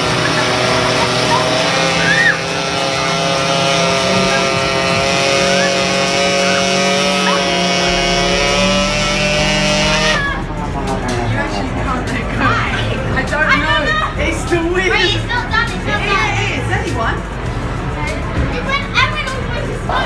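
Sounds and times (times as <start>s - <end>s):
rider squealing: 0.0s - 10.6s
ride electric buzz and drone: 0.0s - 20.0s.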